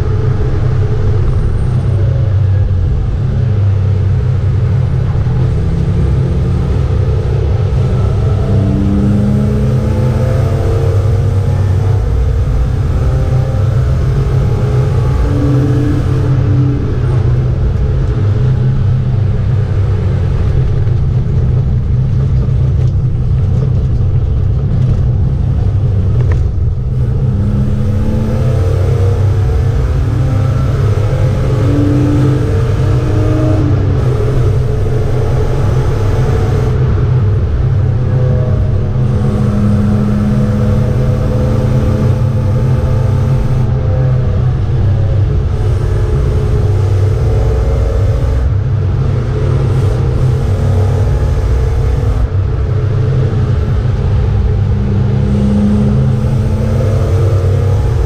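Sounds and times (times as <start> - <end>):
race car engine running hard: 0.0 - 58.0
heavy cabin rumble: 11.6 - 28.2.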